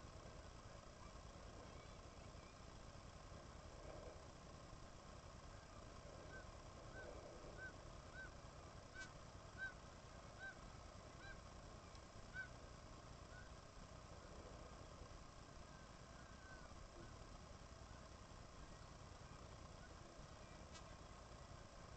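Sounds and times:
bird calling: 5.6s - 11.5s, 12.3s - 12.6s, 13.3s - 13.6s.

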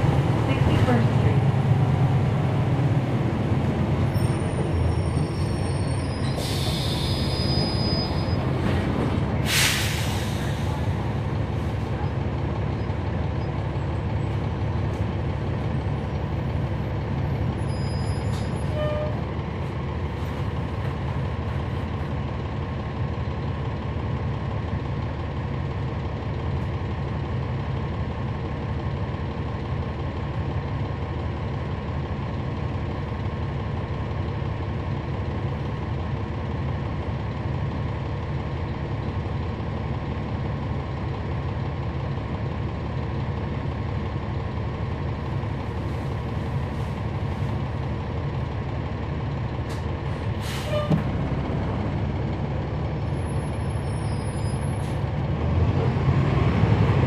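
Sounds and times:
bus diesel engine running: 0.0s - 57.0s
air brake hiss: 6.2s - 7.5s, 9.4s - 10.8s, 50.4s - 50.9s.

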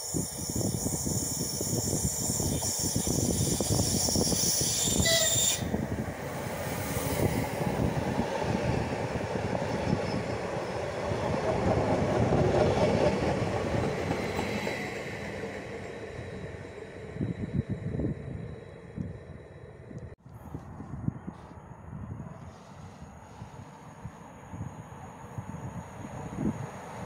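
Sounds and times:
train high hiss: 0.0s - 8.1s
train wheels rumbling over rails: 0.0s - 20.2s.

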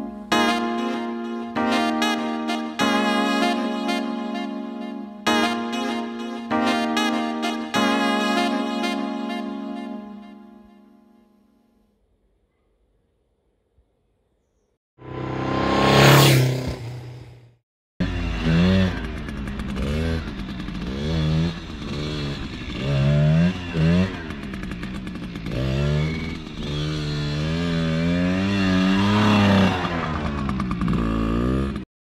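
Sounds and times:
small motorcycle engine revving: 15.0s - 31.9s.

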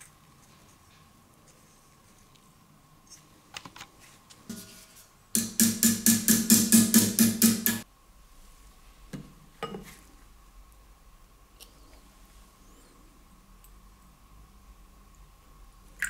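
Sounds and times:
hammer tapping metal punch: 5.4s - 7.8s.

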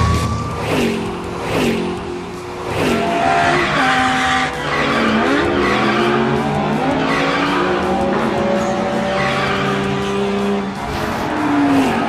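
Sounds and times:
car engine revving: 0.0s - 12.0s
tyres screeching: 2.6s - 12.0s.

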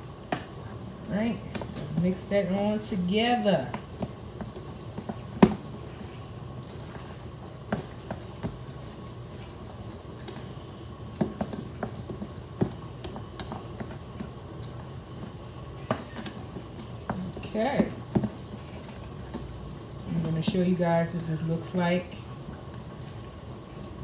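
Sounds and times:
spoon stirring and scraping bowl: 3.6s - 9.6s.

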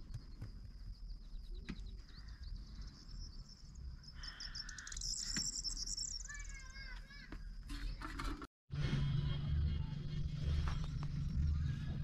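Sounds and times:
bird chirps: 0.2s - 8.0s
high-pitched insect chirring: 4.2s - 6.6s.

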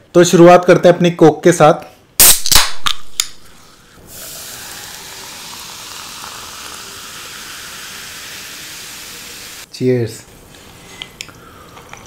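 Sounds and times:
soda fizzing: 3.6s - 9.7s.

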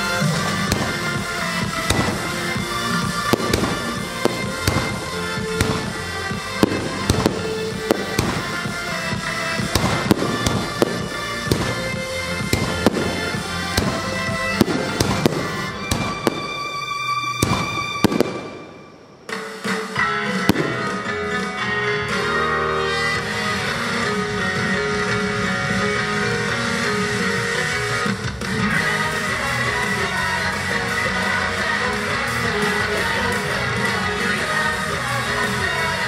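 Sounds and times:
show music: 0.0s - 36.0s
fireworks shells bursting: 0.4s - 21.5s.

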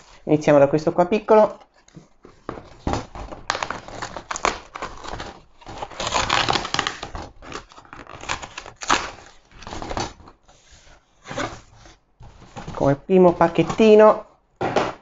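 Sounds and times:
cardboard rustling and crackling: 1.1s - 14.9s
cardboard ripping: 1.6s - 10.4s.

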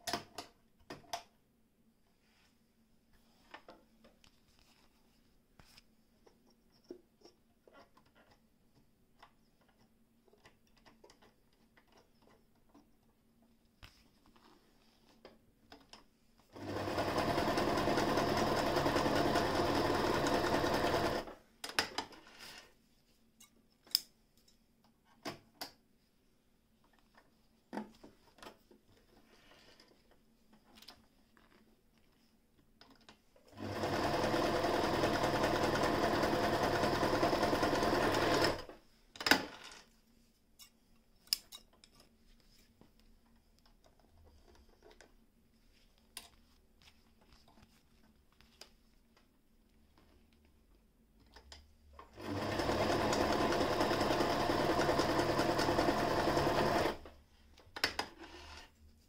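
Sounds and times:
sewing machine stitching: 16.6s - 21.4s, 33.5s - 38.8s, 52.1s - 57.1s.

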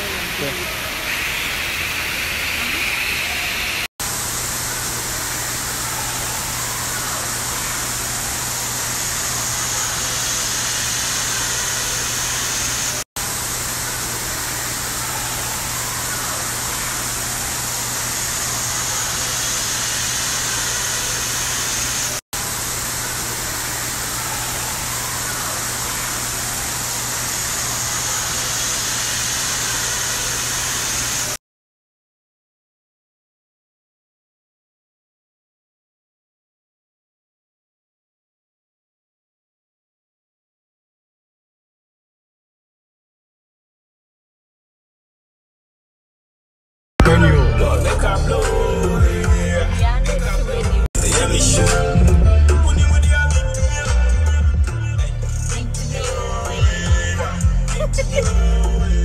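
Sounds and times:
steady rushing hiss: 0.0s - 31.4s.

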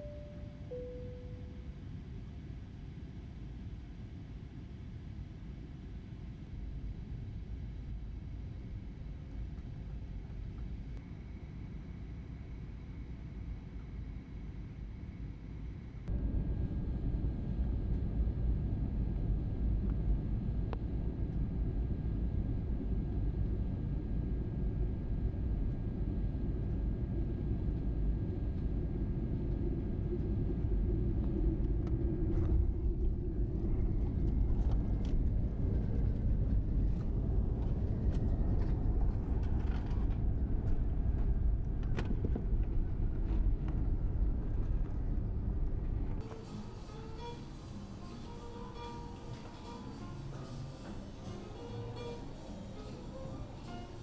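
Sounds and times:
moving vehicle rumble: 16.1s - 54.0s.

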